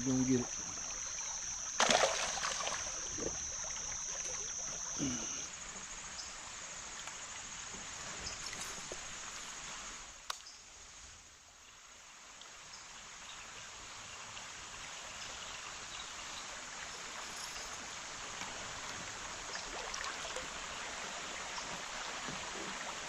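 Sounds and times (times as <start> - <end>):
high-pitched buzz: 0.0 - 5.5
running water: 0.0 - 10.0, 13.9 - 23.0.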